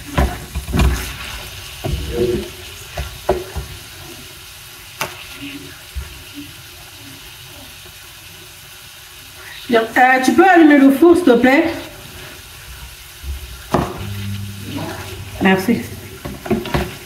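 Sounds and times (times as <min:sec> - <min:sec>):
steady hiss: 0:11.7 - 0:17.0.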